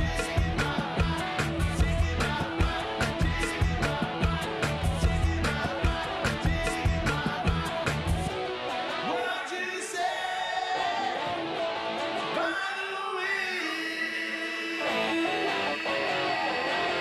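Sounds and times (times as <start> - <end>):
heavy looped beat: 0.0 - 8.3
man singing: 0.0 - 8.3, 9.0 - 11.5, 12.2 - 17.0
guitar: 0.0 - 17.0.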